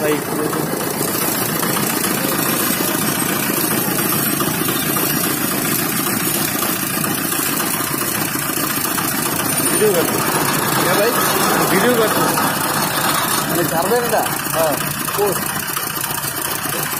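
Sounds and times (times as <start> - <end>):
juice press rollers crushing cane: 0.5 - 15.6.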